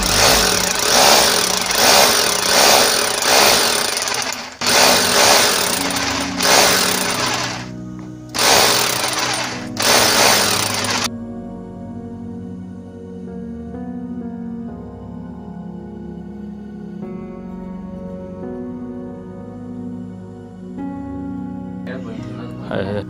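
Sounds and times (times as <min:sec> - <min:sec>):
rotary hammer drill boring into wall: 0:00.0 - 0:07.7, 0:08.3 - 0:11.1
background music: 0:00.0 - 0:23.0.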